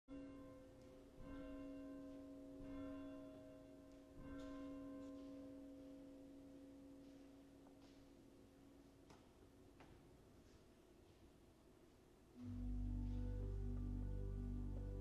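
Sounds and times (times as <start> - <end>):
pipe organ chords: 12.4 - 15.0.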